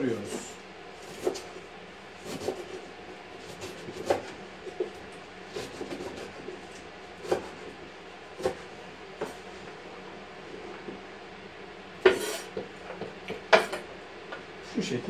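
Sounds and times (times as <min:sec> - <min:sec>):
knife chopping on wooden board: 0:01.0 - 0:01.6, 0:02.2 - 0:02.8, 0:03.4 - 0:07.6, 0:08.4 - 0:09.4, 0:12.0 - 0:13.9.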